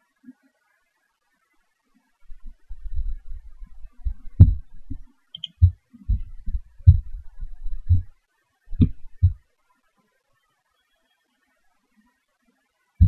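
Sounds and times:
low thumps and rumbles: 0:02.7 - 0:05.0, 0:05.6 - 0:08.1, 0:08.7 - 0:09.4.

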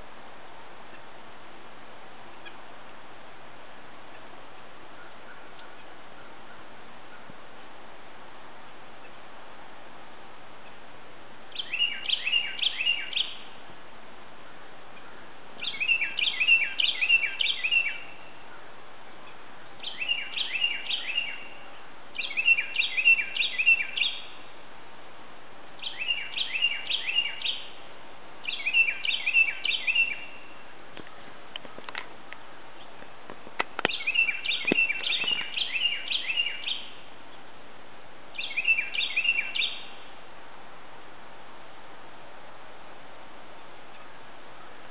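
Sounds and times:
bird singing whistles: 0:11.6 - 0:13.4, 0:15.6 - 0:18.1, 0:19.8 - 0:21.5, 0:22.2 - 0:24.3, 0:25.8 - 0:27.7, 0:28.5 - 0:30.5, 0:33.9 - 0:36.9, 0:38.4 - 0:39.9.

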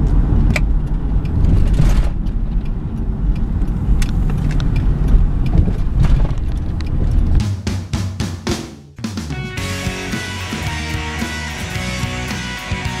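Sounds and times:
car engine and road rumble: 0:00.0 - 0:07.7.

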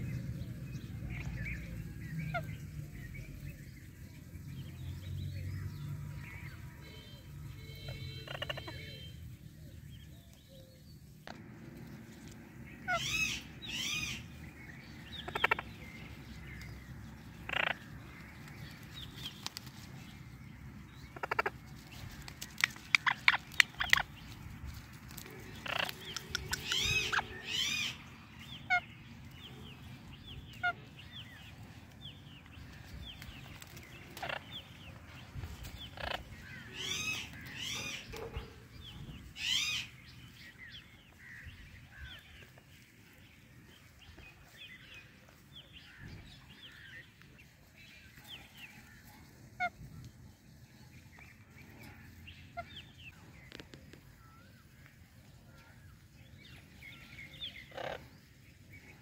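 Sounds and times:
parrots squawking and whistling: 0:12.8 - 0:14.3, 0:25.6 - 0:28.0, 0:39.4 - 0:39.9.

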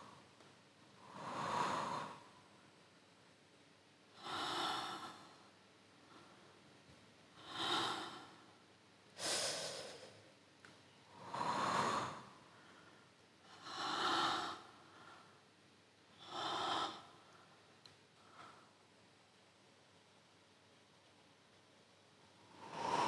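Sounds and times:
person breathing deeply: 0:00.0 - 0:00.2, 0:01.0 - 0:02.5, 0:04.1 - 0:06.6, 0:07.3 - 0:08.6, 0:09.2 - 0:10.3, 0:11.1 - 0:15.5, 0:16.1 - 0:18.8, 0:22.4 - 0:23.0.

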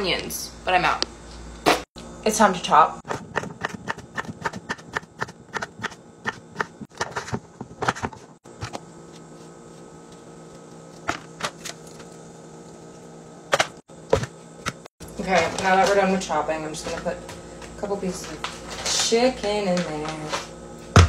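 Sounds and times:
steady hum: 0:00.0 - 0:21.0
knife chopping on wooden board: 0:03.1 - 0:08.0.

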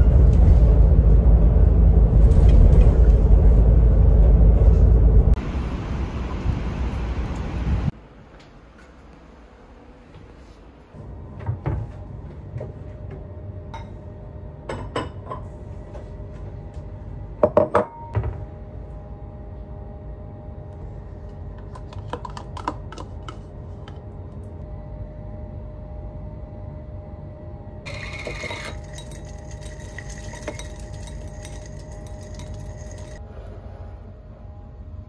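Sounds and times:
steady low hum: 0:00.0 - 0:35.0
dishes clattering: 0:27.9 - 0:33.2
spoon clinking ceramic bowl: 0:27.9 - 0:33.2.

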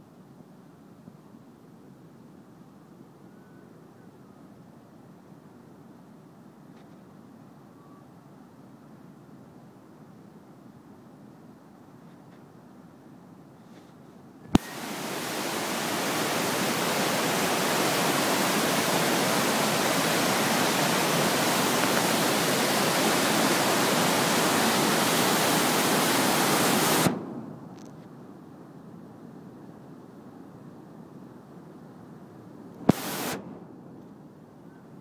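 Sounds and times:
floodwater rushing over rocks: 0:14.6 - 0:27.2.

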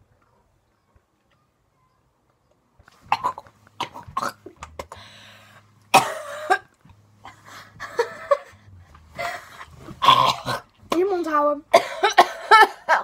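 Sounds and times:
girls coughing and gagging: 0:03.1 - 0:05.1, 0:05.9 - 0:06.8, 0:07.7 - 0:08.6, 0:09.2 - 0:11.0, 0:11.7 - 0:13.0.

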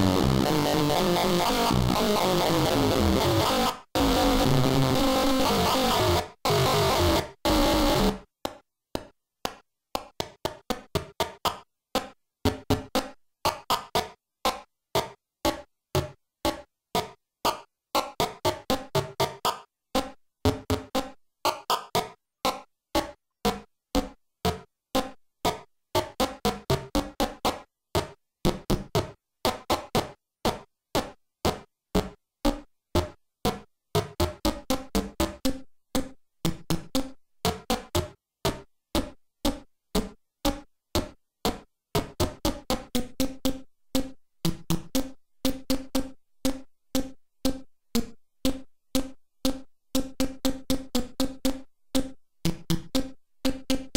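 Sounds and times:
chiptune synthesizer notes: 0:00.0 - 0:08.2.

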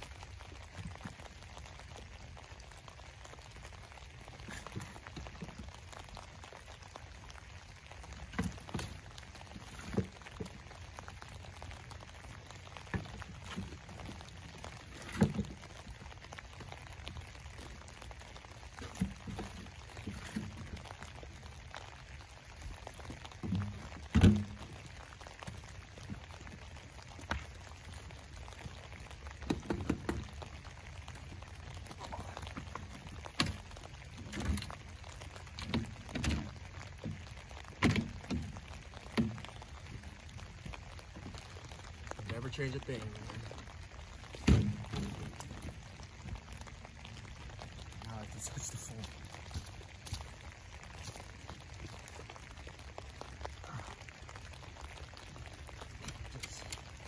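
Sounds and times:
dirt pouring: 0:00.0 - 0:57.0.

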